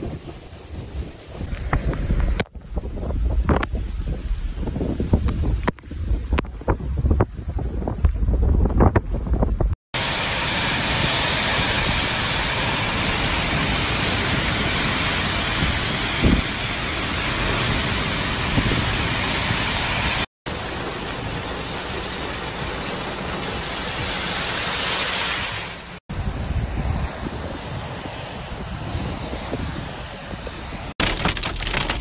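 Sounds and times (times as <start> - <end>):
heavy rain pouring: 10.0 - 26.0, 31.0 - 32.0.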